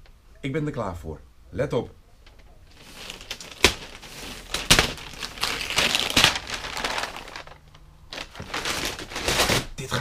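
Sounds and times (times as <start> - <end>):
wrapping paper ripping: 2.7 - 9.8.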